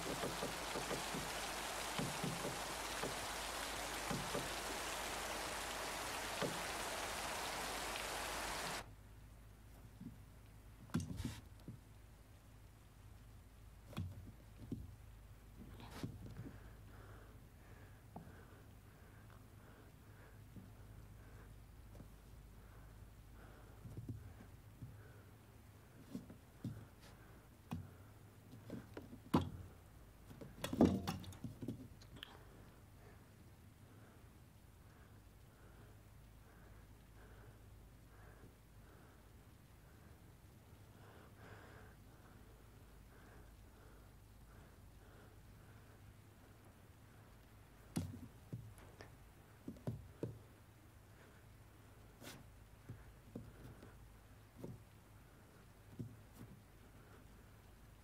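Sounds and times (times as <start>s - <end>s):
knocks on wooden floorboards: 0.0s - 4.9s, 6.3s - 6.7s.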